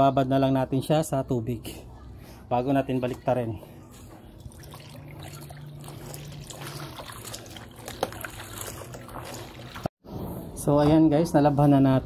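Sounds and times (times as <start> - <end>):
fabric squishing in water: 3.9 - 9.9.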